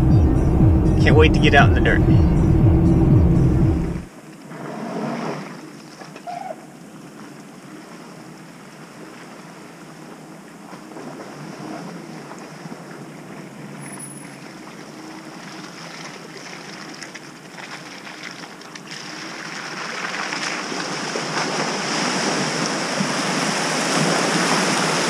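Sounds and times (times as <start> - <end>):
brief high-pitched sound: 0.0 - 4.1
distant car engine drone: 0.0 - 4.1.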